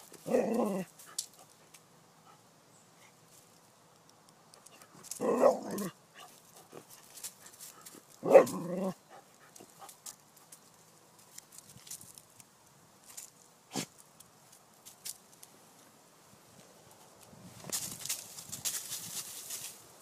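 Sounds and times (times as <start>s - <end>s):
faint scuffs and rustles: 6.2s - 8.6s, 9.2s - 20.0s
dog barking: 8.2s - 8.6s.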